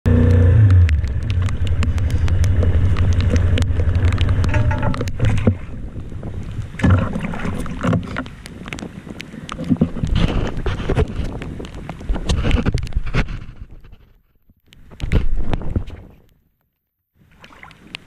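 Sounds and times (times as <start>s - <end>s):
raindrop ticks: 0.1s - 7.0s, 7.6s - 13.3s
wind buffeting microphone: 0.6s - 14.0s.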